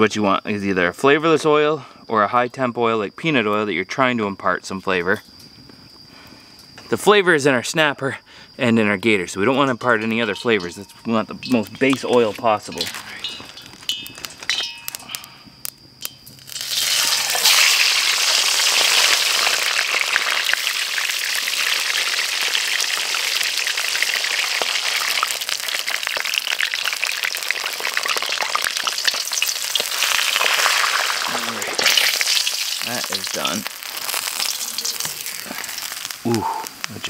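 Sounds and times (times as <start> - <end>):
fish sizzling in hot oil: 15.6 - 37.0.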